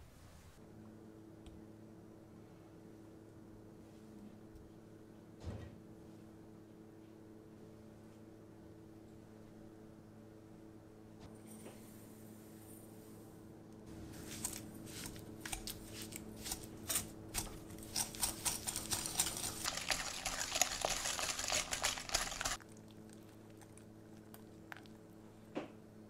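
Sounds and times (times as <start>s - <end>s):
whisk scraping a glass bowl: 14.2s - 22.6s.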